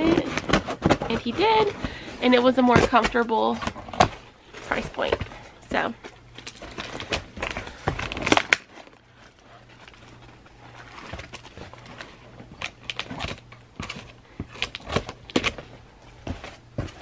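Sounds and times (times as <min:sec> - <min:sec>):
packaging crinkling: 0:06.1 - 0:17.0.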